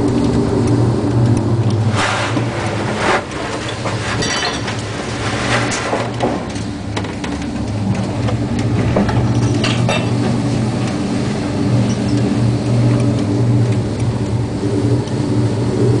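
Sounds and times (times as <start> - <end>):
heavy seas breaking over bow: 0.0 - 16.0
ship engines droning: 0.0 - 16.0
wind: 0.0 - 16.0.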